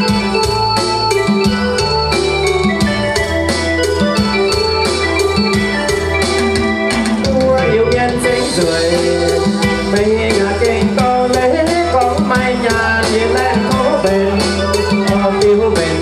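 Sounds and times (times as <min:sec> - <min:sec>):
live band dance music: 0:00.0 - 0:16.0
person singing: 0:06.9 - 0:16.0.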